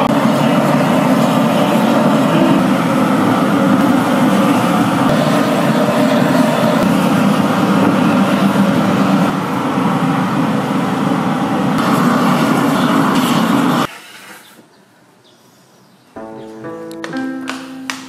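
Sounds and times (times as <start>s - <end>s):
blowtorch flame hissing: 0.0s - 13.9s
plucked-string music: 16.2s - 18.0s.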